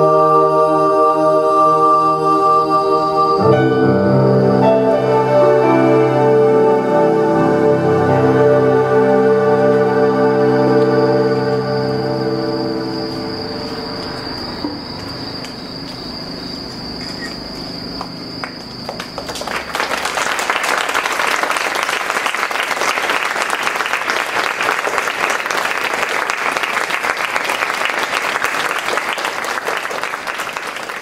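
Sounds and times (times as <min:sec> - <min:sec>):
crickets trilling: 0:00.7 - 0:21.6
crowd applauding: 0:18.4 - 0:31.0.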